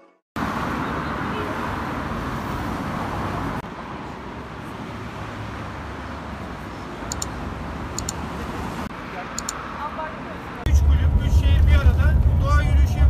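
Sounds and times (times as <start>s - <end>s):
road traffic: 0.4s - 13.0s
mouse clicks: 7.1s - 7.3s, 8.0s - 8.2s, 9.4s - 9.6s.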